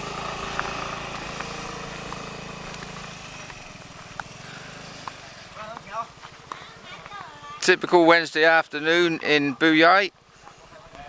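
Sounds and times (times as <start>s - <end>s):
scooter engine running: 0.0s - 8.1s.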